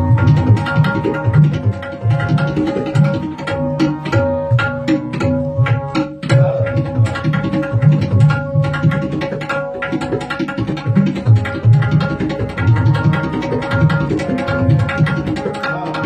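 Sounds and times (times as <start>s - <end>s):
harmonium melody: 0.0s - 16.0s
tabla strokes: 0.0s - 16.0s.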